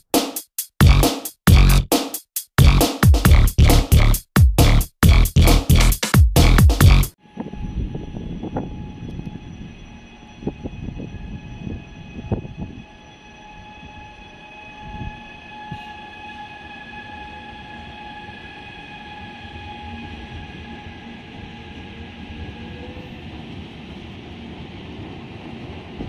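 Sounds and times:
electric train whine and rumble: 0:07.2 - 0:26.0.

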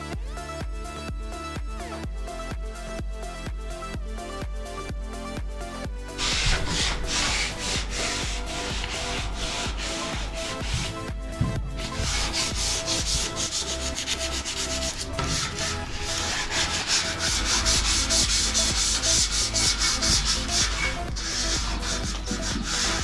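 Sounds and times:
sandpaper rasping on steel: 0:06.2 - 0:23.0.

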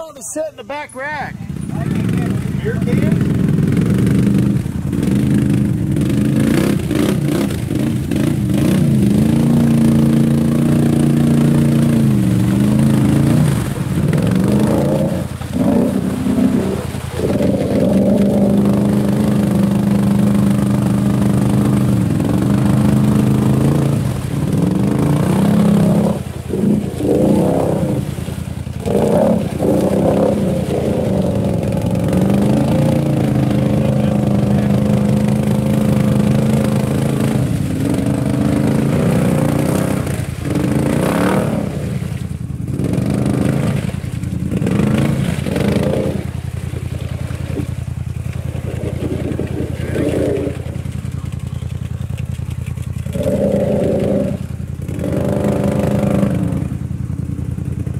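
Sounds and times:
atv engine revving: 0:00.0 - 0:57.9.

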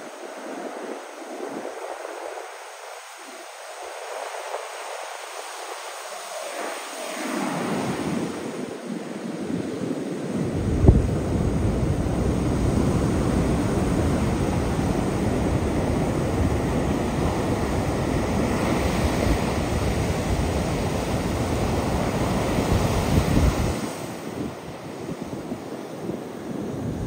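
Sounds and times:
surf breaking on beach: 0:00.0 - 0:27.0
wind buffeting microphone: 0:07.4 - 0:27.0.

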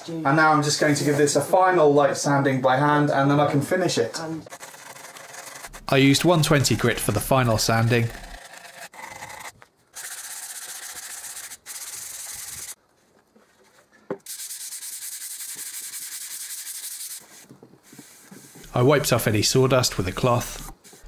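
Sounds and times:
sandpaper rubbing on wood: 0:04.5 - 0:12.8, 0:14.3 - 0:21.0.

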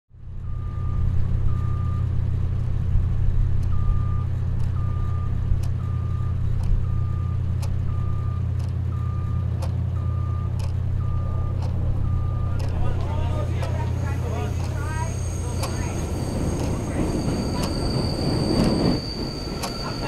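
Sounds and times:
low engine rumble: 0:00.1 - 0:20.0
reversing alarm beeping: 0:00.4 - 0:02.1, 0:03.7 - 0:20.0
sharp clicks: 0:08.5 - 0:08.8, 0:10.5 - 0:10.8.

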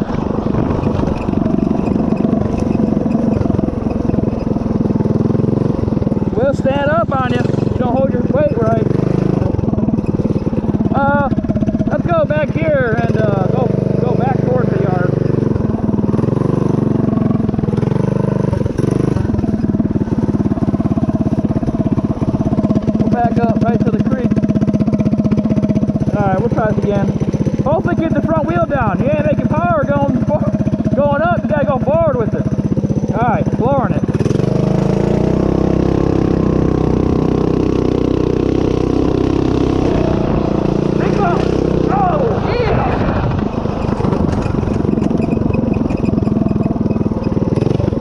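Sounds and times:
mini bike engine revving: 0:00.0 - 0:48.0.

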